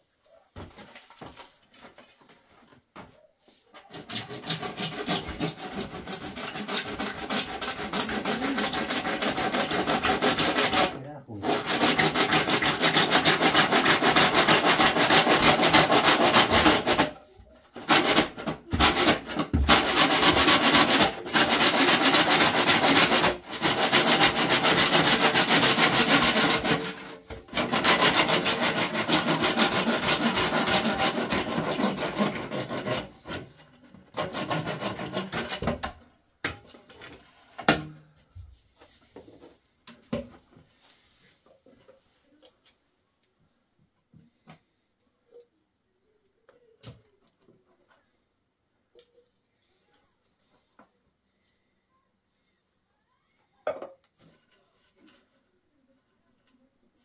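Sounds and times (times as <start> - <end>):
hand saw cutting plastic pipe: 3.8 - 17.2, 17.8 - 36.0.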